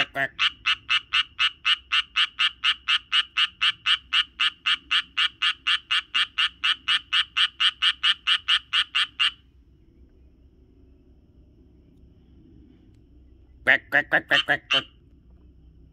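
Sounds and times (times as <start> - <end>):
tree frog croaking: 0.0 - 9.4, 13.6 - 15.0.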